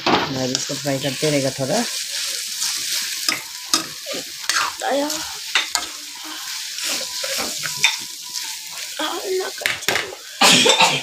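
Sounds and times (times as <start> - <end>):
chicken sizzling in a wok: 0.0 - 11.0
plastic spoon scraping a pan: 6.7 - 8.6.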